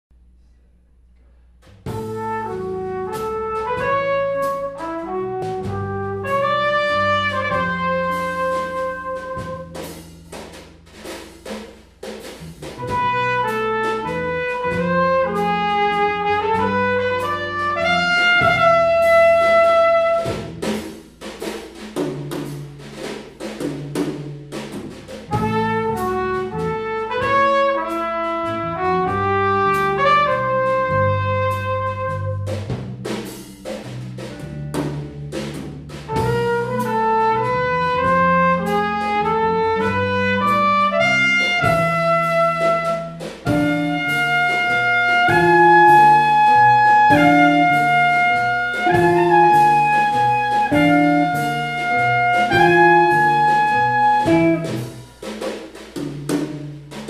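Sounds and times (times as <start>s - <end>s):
bass: 0.0s - 57.0s
drum kit with cymbals: 1.6s - 57.0s
brass horn melody: 1.9s - 10.1s, 12.7s - 20.8s, 25.3s - 32.7s, 36.1s - 55.1s.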